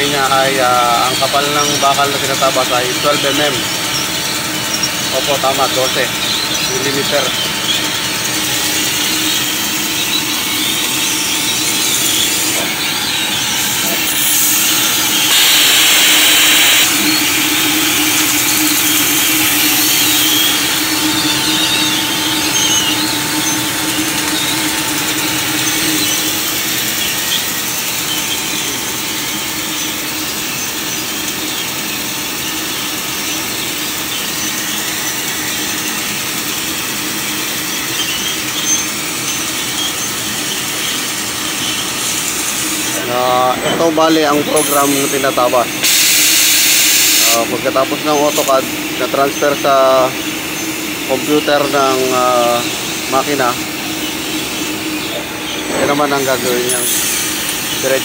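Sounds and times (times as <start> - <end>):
steady machine hum: 0.0 - 58.0
laser cutting head hiss: 11.4 - 23.0, 41.8 - 48.6, 51.1 - 58.0.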